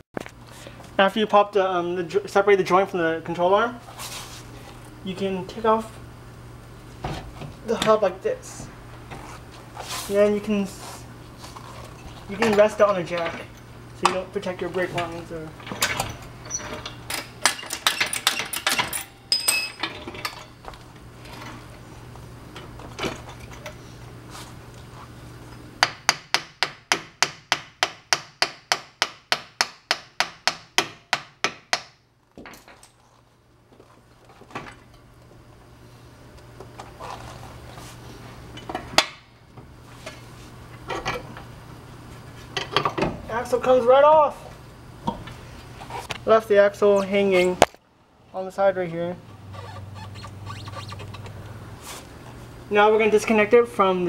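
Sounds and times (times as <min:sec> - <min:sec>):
metal clanks and ringing: 0:15.7 - 0:20.6.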